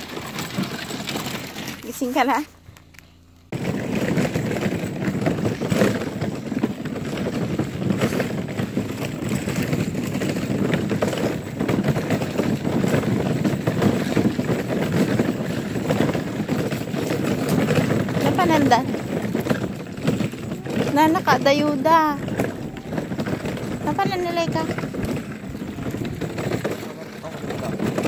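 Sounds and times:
wagon wheels rolling on gravel: 0:00.0 - 0:02.5, 0:03.5 - 0:28.0.

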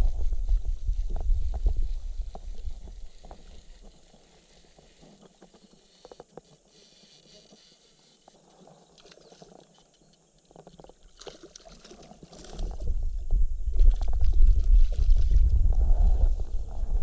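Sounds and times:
wind buffeting microphone: 0:00.0 - 0:03.1, 0:12.6 - 0:17.0
fishing reel clicks and rustles: 0:02.3 - 0:12.9.

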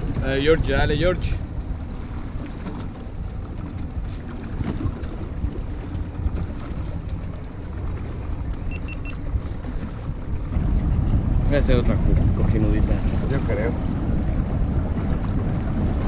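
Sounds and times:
choppy sea washing: 0:00.0 - 0:16.0
wind buffeting microphone: 0:00.0 - 0:16.0
short high beeps: 0:08.7 - 0:09.2.

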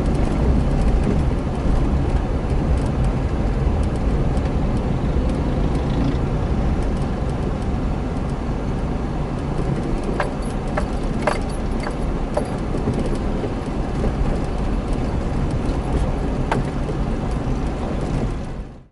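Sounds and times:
car engine and road rumble: 0:00.0 - 0:18.9
short clicks or rattles: 0:09.6 - 0:13.3.

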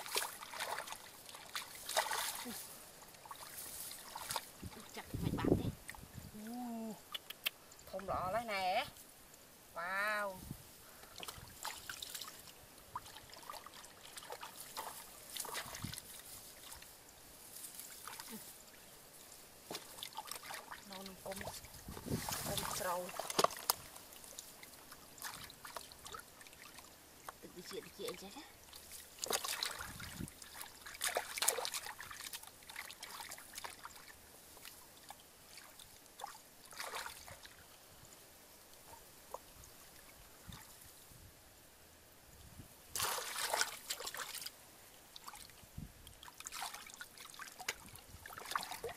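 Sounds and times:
hands splashing in muddy water: 0:00.0 - 0:05.0, 0:11.2 - 0:16.9, 0:19.7 - 0:26.9, 0:28.1 - 0:34.8, 0:35.5 - 0:37.6, 0:43.0 - 0:44.5, 0:46.2 - 0:48.9
water trickling: 0:00.0 - 0:40.9.

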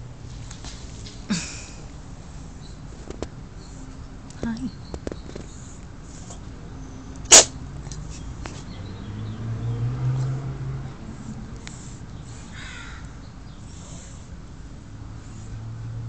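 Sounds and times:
pet sharp burst: 0:07.3 - 0:07.6.

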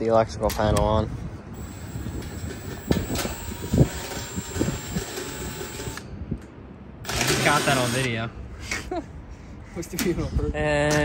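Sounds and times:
impact driver whining: 0:01.6 - 0:06.0, 0:07.0 - 0:08.2.

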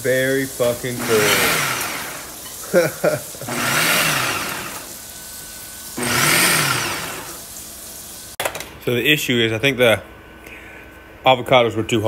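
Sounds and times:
blender pulsing: 0:00.6 - 0:02.5, 0:03.3 - 0:05.1, 0:05.8 - 0:07.5.

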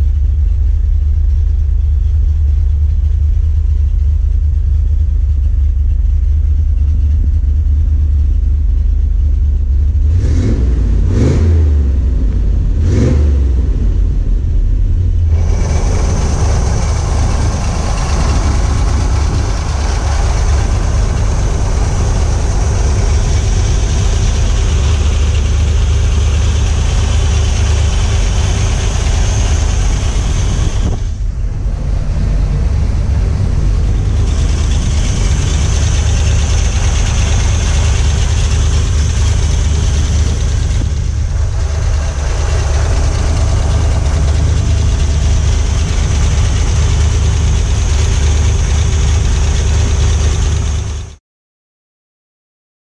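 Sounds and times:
car engine idling: 0:00.0 - 0:51.2.

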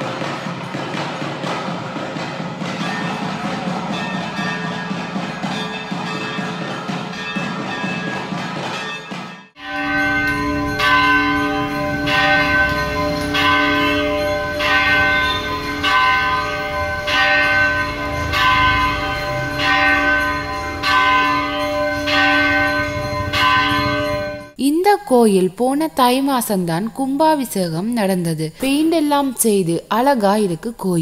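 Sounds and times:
large temple bell ringing: 0:00.0 - 0:24.6.

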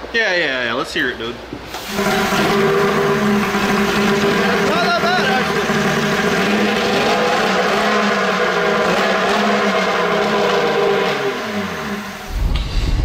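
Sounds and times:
two-stroke engine running: 0:01.9 - 0:12.3.

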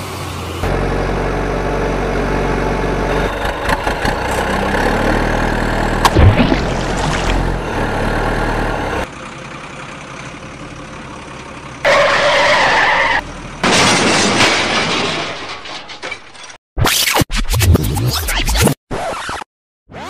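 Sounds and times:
engine running: 0:00.0 - 0:13.8
splashing in mud: 0:06.0 - 0:07.6.

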